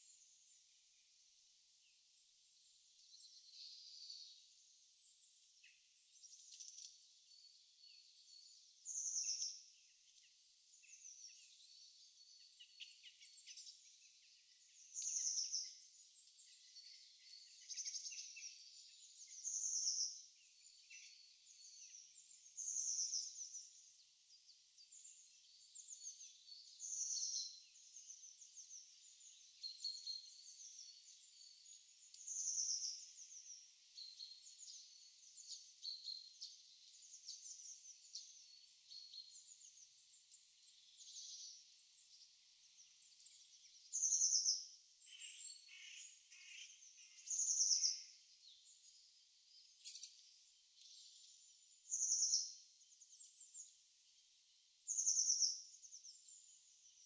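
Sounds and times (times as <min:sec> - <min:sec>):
low rapidly pulsed bird call: 0:01.9 - 0:57.0
bird chirps and trills: 0:03.1 - 0:57.0.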